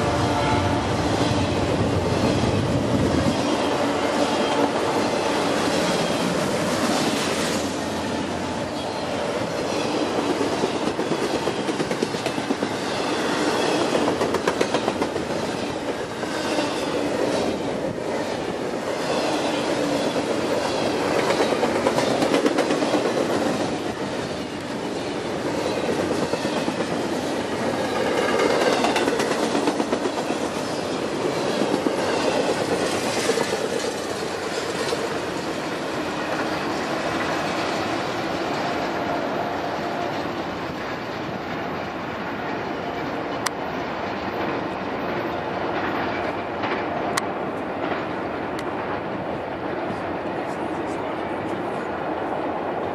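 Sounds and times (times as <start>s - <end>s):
train wheels clattering over rail joints: 19.0s - 23.8s, 27.9s - 35.2s.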